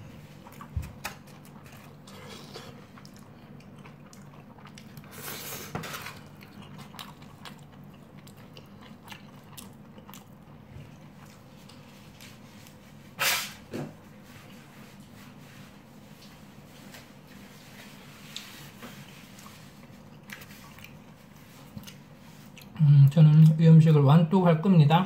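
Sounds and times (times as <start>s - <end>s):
person chewing: 0.1s - 12.9s, 17.2s - 23.6s.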